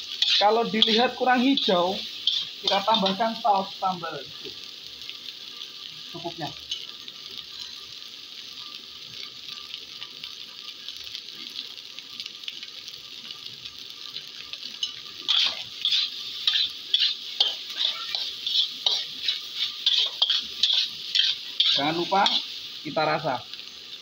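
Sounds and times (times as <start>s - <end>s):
metal spatula scraping a wok: 0.0s - 3.4s, 14.8s - 22.8s
rice sizzling in a wok: 0.0s - 24.0s.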